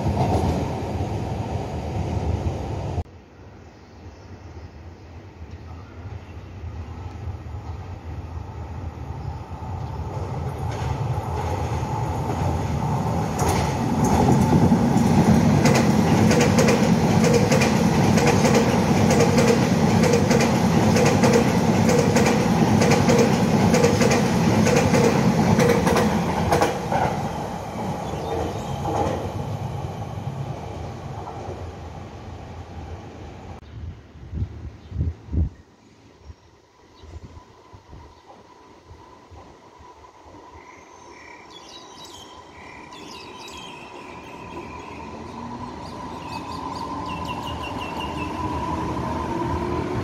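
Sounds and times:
train rumbling past: 0.0s - 3.5s, 5.7s - 33.6s, 36.1s - 50.0s
wheels clacking over rail joints: 13.2s - 27.3s.

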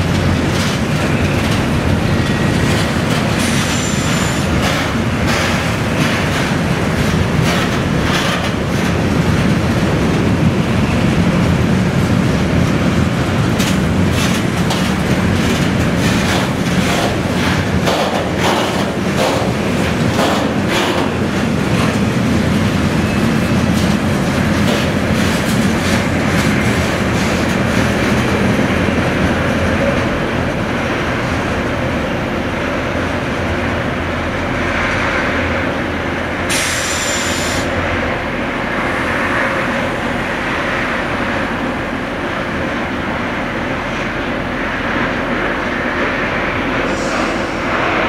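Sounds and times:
train wheel clicks: 0.0s - 9.1s, 13.2s - 22.8s
train wheels rumbling on rails: 0.0s - 48.0s
short hissing burst: 36.5s - 37.6s.

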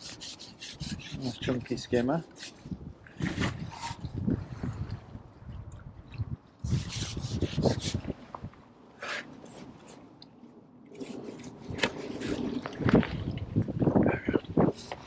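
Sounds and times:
fishing pole rustling and scraping: 0.0s - 4.9s, 6.6s - 8.1s, 9.0s - 10.2s, 10.9s - 13.3s.

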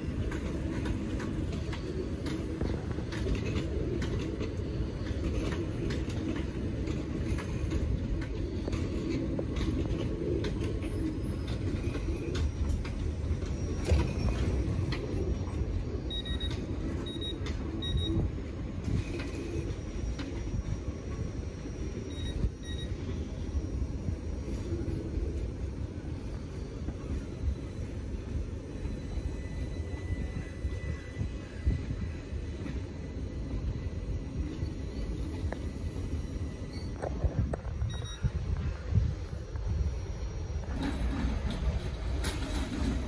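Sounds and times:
wheels clicking over rail joints: 0.0s - 18.0s, 40.6s - 43.0s
train clank: 0.0s - 21.3s, 40.7s - 43.0s
train rumbling: 0.0s - 43.0s
short high electronic beeps: 16.1s - 18.2s, 21.9s - 23.1s, 37.8s - 38.3s.

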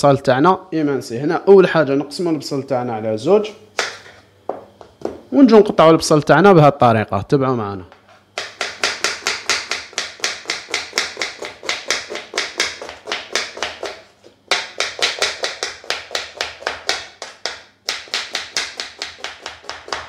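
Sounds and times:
knife chopping on wooden board: 8.4s - 20.0s.

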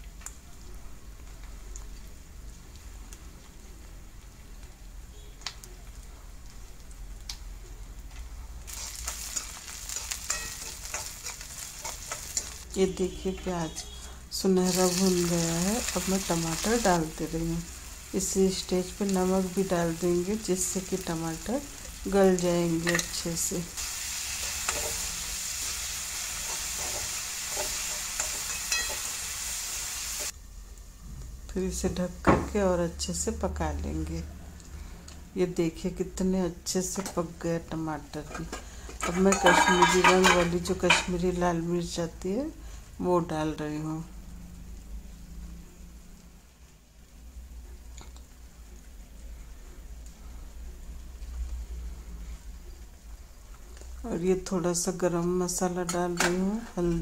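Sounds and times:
onion sizzling in oil: 6.4s - 34.2s, 35.5s - 57.0s.

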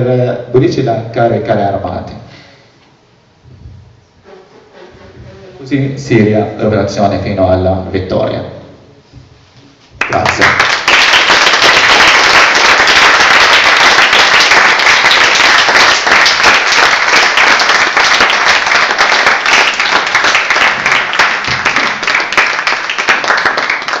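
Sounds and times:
audience applauding: 10.0s - 24.0s.

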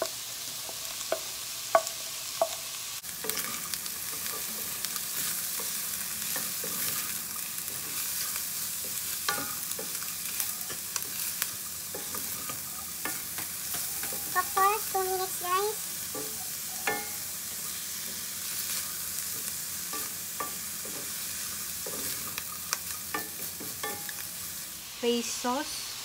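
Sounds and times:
food sizzling in oil: 0.0s - 26.0s
wooden spatula knocking on pan: 1.1s - 2.6s.

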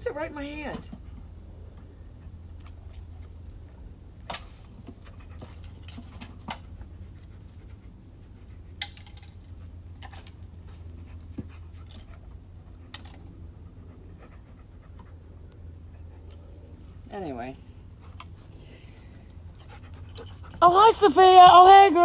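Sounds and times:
dog panting: 4.9s - 20.9s.

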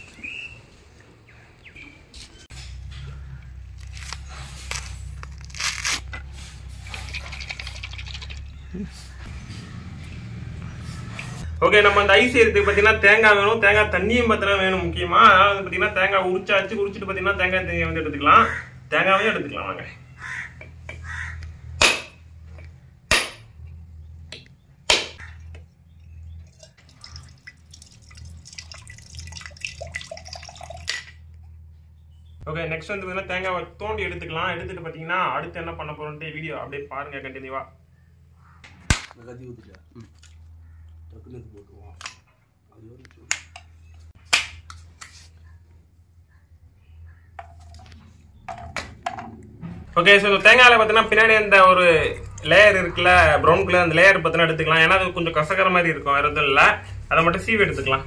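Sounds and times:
knife striking coconut shell: 21.8s - 22.2s, 23.1s - 23.5s, 24.9s - 25.2s, 44.3s - 44.7s
water dripping into steel vessel: 25.2s - 31.2s
coconut meat cracking: 38.9s - 39.2s, 44.2s - 44.9s.

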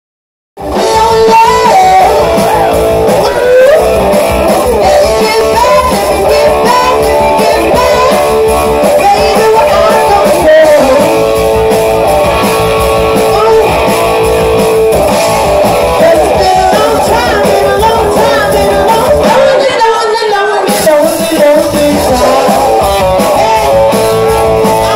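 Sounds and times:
bass guitar: 0.6s - 24.9s
drums: 0.6s - 24.9s
electric guitar: 0.6s - 24.9s
woman singing: 0.8s - 4.0s, 4.7s - 11.2s, 13.3s - 13.8s, 16.0s - 22.8s.

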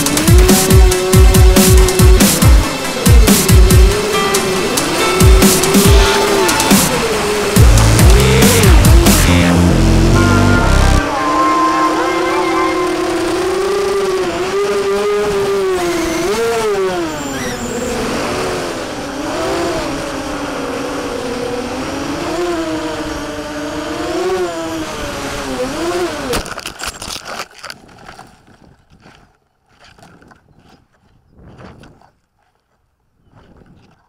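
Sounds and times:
drone motors whining: 0.0s - 26.4s.

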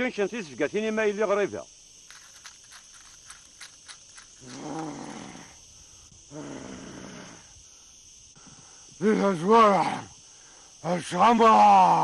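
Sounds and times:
low rough growling voice: 6.3s - 7.5s.

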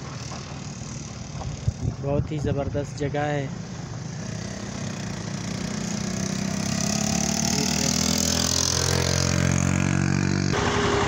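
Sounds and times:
tyres on road: 0.0s - 11.0s
car engine: 3.5s - 11.0s.

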